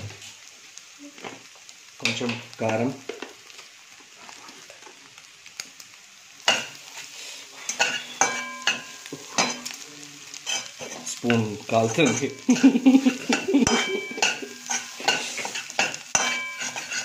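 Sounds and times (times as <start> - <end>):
faint frying sizzle: 0.0 - 17.0
spatula clanking and scraping wok: 6.4 - 9.8, 10.4 - 17.0.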